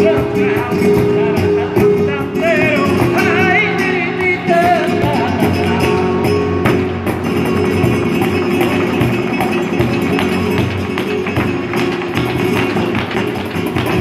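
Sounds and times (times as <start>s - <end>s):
person singing: 0.0s - 6.6s
cajon drum: 0.0s - 14.0s
flamenco guitar: 0.0s - 14.0s
hand-clapping: 7.9s - 14.0s.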